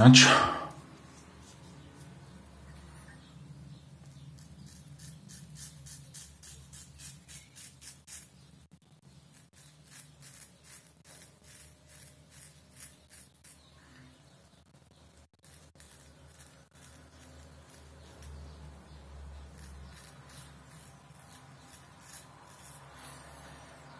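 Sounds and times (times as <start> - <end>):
razor scraping stubble: 4.0 - 8.5, 9.2 - 14.2, 15.2 - 23.9.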